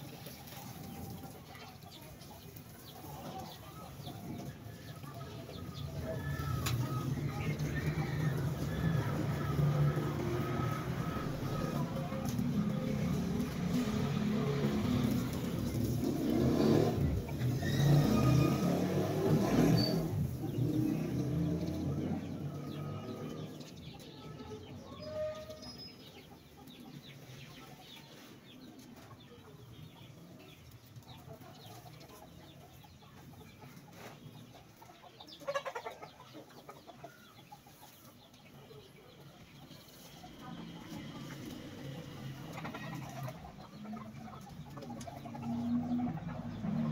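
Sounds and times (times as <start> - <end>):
chickens clucking: 0.0 - 46.9
passing motor vehicle: 0.2 - 24.1, 39.5 - 46.9
pulsing chicken calls: 0.3 - 23.6.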